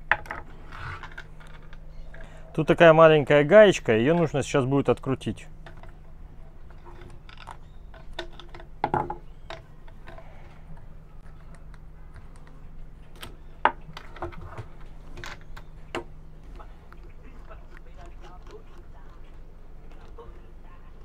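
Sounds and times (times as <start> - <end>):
faint low hum: 0.0 - 21.0
plastic and metal parts clicking: 6.7 - 13.4.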